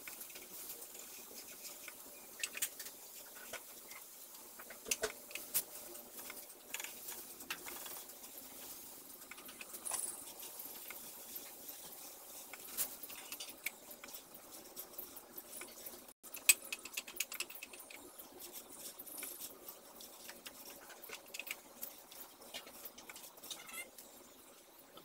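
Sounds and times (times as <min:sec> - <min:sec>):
brush against metal paint can: 0:00.0 - 0:16.2.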